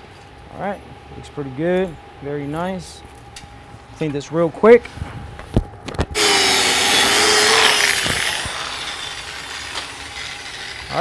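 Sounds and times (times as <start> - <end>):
wire wheel scrubbing steel: 6.2 - 11.0.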